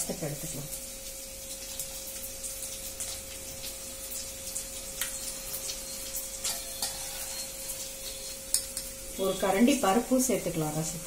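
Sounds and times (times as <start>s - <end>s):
light clicks and splashes: 1.6s - 5.8s.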